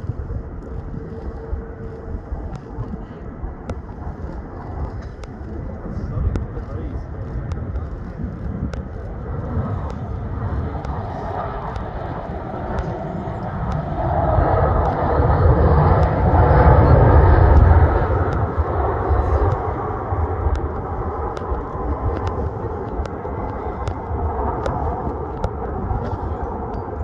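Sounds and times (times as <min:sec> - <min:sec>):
jet engines roaring: 0:00.0 - 0:27.0.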